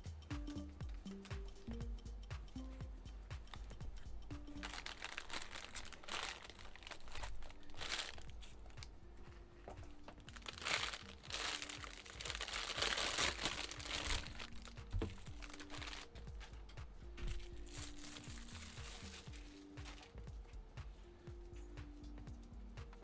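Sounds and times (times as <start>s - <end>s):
plastic wrapping crinkling: 4.5s - 16.6s, 17.2s - 20.2s.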